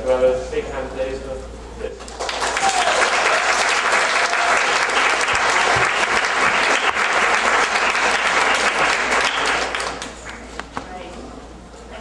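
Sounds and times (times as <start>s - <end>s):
audience applauding: 2.1s - 10.6s.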